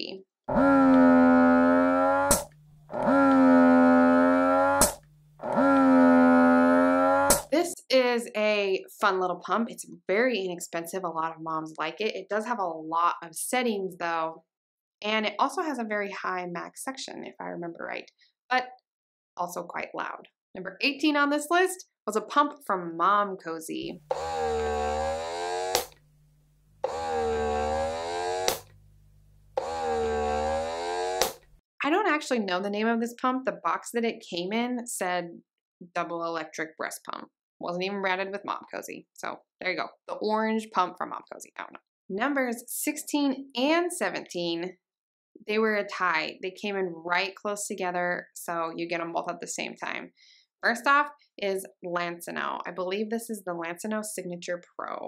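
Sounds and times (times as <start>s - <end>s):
breast pump motor humming: 0.5s - 7.5s, 24.0s - 26.2s, 26.8s - 28.9s, 29.5s - 31.5s
pump sharp click: 2.3s - 2.6s
breast pump click: 24.1s - 26.0s, 26.8s - 28.8s, 29.6s - 31.5s.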